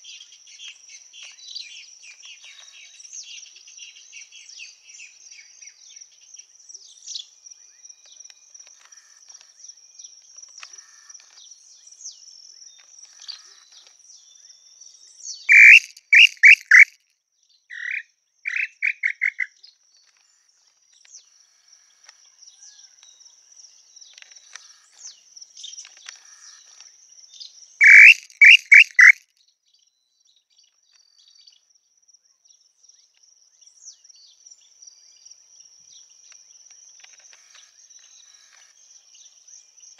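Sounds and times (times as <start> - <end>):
bird whistled calls: 15.5 - 16.9, 17.7 - 19.5, 27.8 - 29.2.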